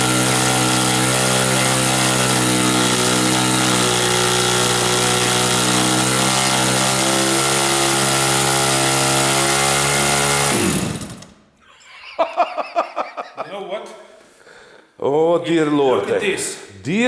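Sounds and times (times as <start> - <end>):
engine turning a propeller: 0.0 - 11.3
men talking: 13.3 - 14.3, 15.0 - 17.0.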